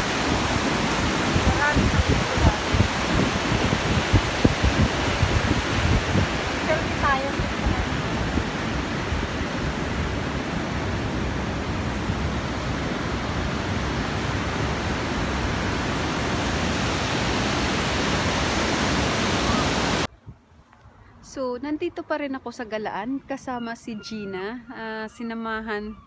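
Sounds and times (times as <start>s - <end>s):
waterfall and rapids rushing: 0.0s - 20.1s.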